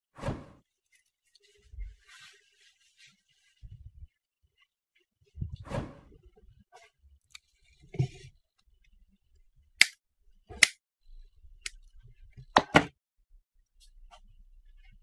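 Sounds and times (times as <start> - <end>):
wire cutters snipping: 10.6 - 10.8.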